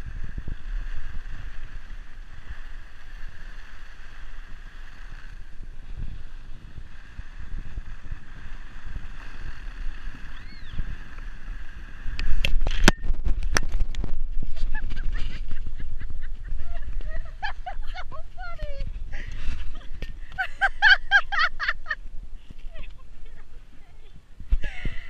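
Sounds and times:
skis sliding over snow: 0.0s - 12.4s
wind on microphone: 0.0s - 25.0s.

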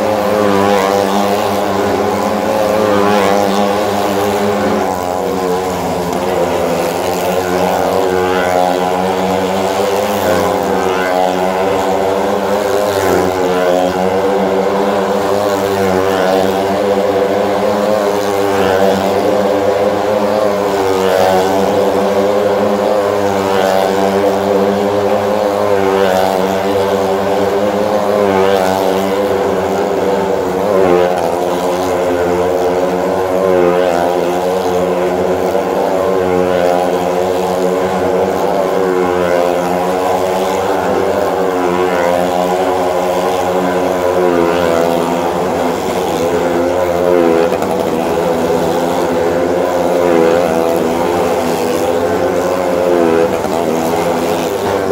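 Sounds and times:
motorcycle engines revving: 0.0s - 54.9s.

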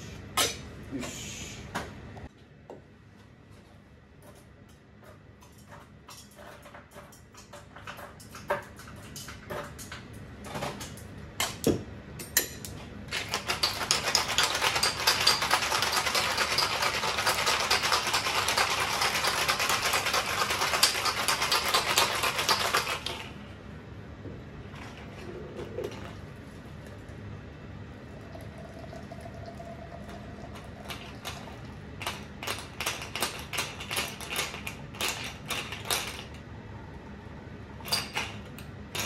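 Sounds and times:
cocktail shaker rattling with ice: 13.1s - 23.3s.

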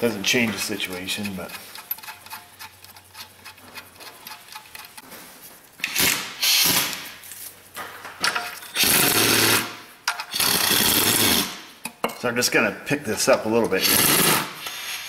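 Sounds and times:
impact wrench bursts: 5.8s - 7.1s, 8.7s - 11.6s.

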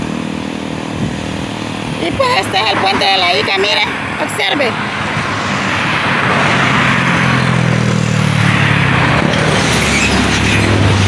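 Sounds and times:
car engines: 0.0s - 11.0s.

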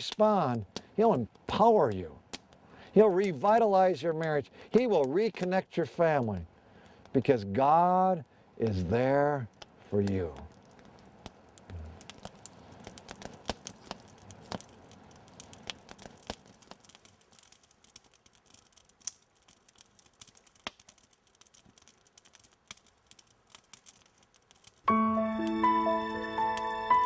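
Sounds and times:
campfire crackling: 0.0s - 27.0s
gentle music with sustained tones: 24.9s - 27.0s.

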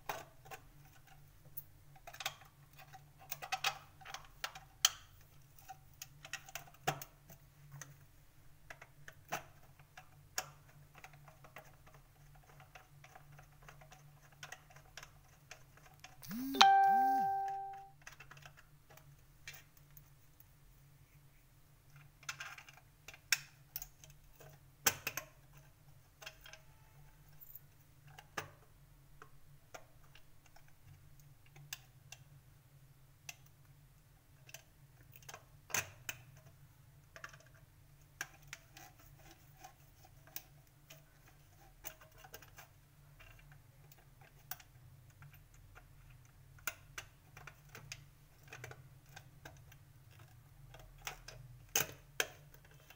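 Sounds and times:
low steady hum: 16.2s - 17.9s.

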